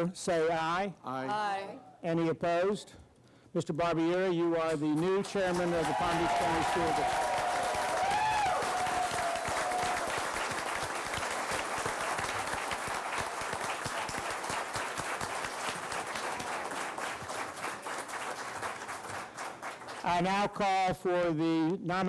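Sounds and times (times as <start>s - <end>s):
crowd applauding: 5.0s - 20.6s.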